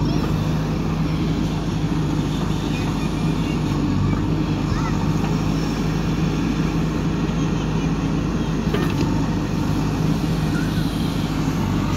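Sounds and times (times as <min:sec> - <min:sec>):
diesel engine under load: 0:00.0 - 0:11.9.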